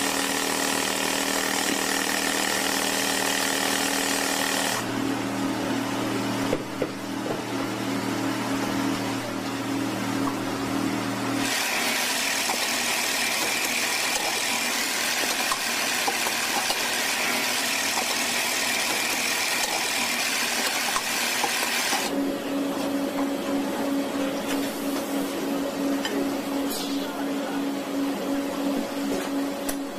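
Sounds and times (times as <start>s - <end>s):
banknote machine running: 0.0s - 4.8s, 11.4s - 22.2s.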